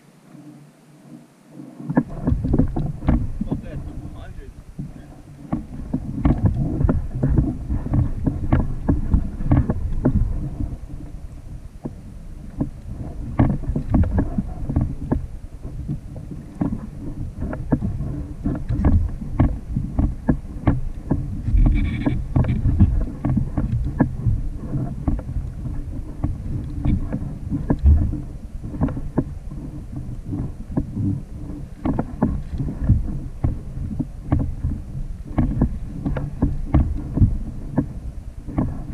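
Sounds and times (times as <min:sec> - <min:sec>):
water slapping against kayak hull: 0:00.3 - 0:38.9
wind buffeting microphone: 0:00.3 - 0:38.9
brief squeak: 0:21.6 - 0:22.2
short knocks and taps: 0:35.4 - 0:37.9.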